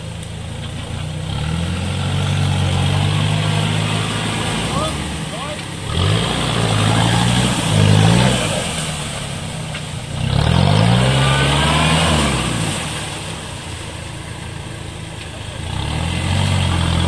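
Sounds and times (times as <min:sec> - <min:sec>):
mud and water churning: 0:00.0 - 0:17.0
engine revving hard: 0:01.2 - 0:13.8, 0:15.5 - 0:17.0.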